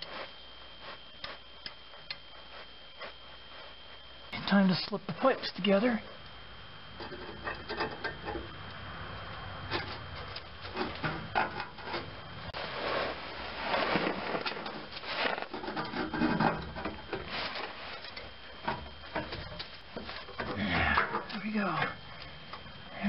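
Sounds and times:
metal pipes rubbing and scraping: 9.8s - 18.3s.

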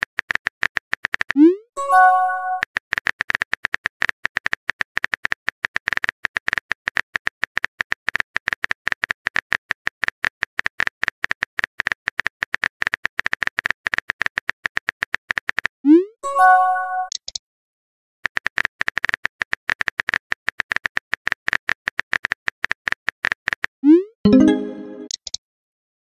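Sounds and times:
message sent chime: 1.8s - 2.6s, 16.2s - 17.1s, 24.3s - 25.1s.

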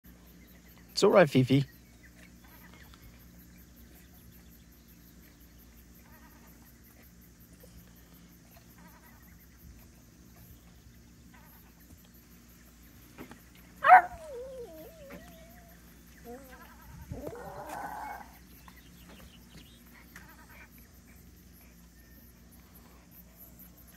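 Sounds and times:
faint low hum: 0.1s - 23.9s
small dog whining: 13.8s - 18.4s.

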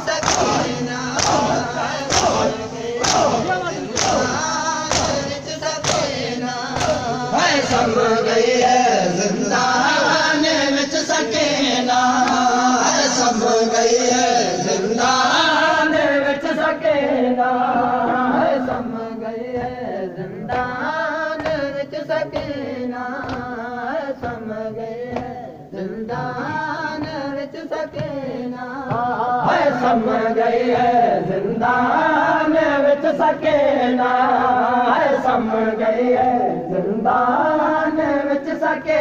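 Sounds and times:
men chanting in unison: 0.0s - 39.0s
chest slaps: 0.2s - 6.2s, 6.8s - 7.1s.

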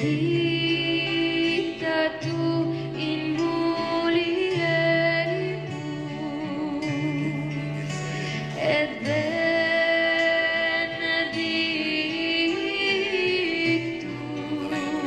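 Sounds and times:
person singing with vibrato: 0.0s - 15.0s
soft instrumental accompaniment: 0.0s - 15.0s.

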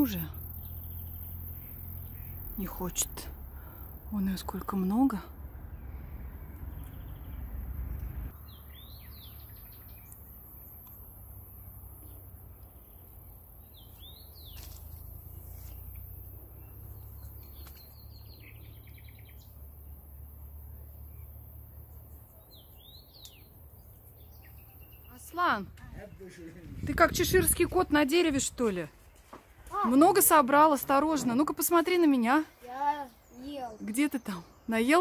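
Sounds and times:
small songbirds chirping: 0.0s - 35.0s
steady low rumble: 25.7s - 29.2s.

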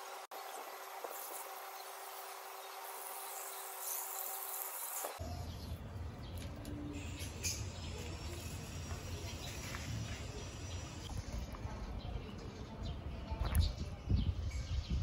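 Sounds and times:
garden hose spraying water: 0.0s - 5.2s.

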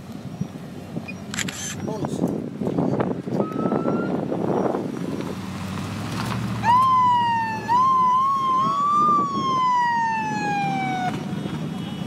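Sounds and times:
motorcycle engines: 0.0s - 12.0s
police siren wailing: 3.4s - 4.3s, 6.6s - 11.3s.

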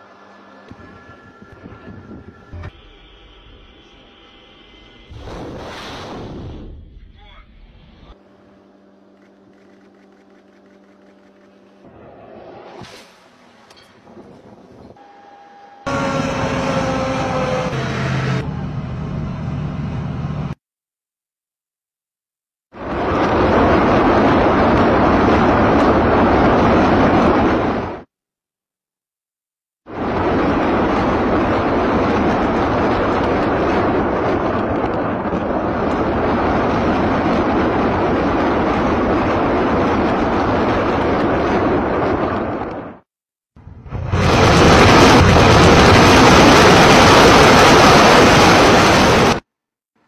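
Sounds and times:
heavy truck engines whining: 0.0s - 5.1s, 8.3s - 20.6s
rockets firing salvo: 43.8s - 49.4s.

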